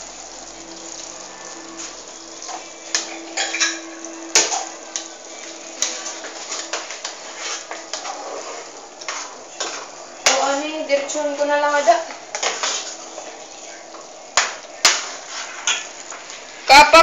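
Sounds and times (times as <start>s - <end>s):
sauce bubbling hiss: 0.0s - 16.7s
faint steady hum: 0.0s - 17.0s
spatula scraping frying pan: 0.3s - 16.6s.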